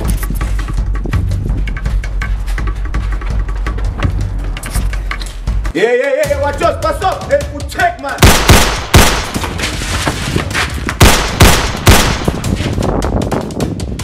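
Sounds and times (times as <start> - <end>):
background music: 0.0 - 14.0
rapid handgun shots: 8.2 - 9.4, 11.0 - 12.4.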